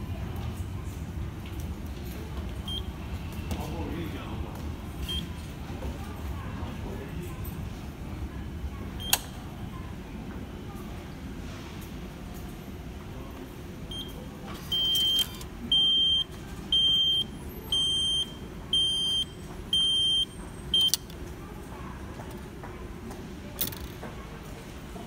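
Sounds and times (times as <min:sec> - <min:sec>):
machine beeping: 0:13.9 - 0:21.2.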